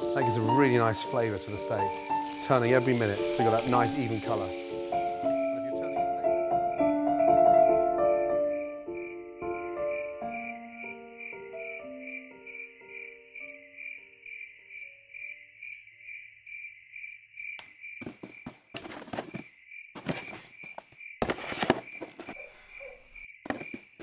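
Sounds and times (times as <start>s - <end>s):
crickets chirping: 0.0s - 7.0s, 8.4s - 24.0s
rustling noise: 18.0s - 22.6s, 23.5s - 24.0s.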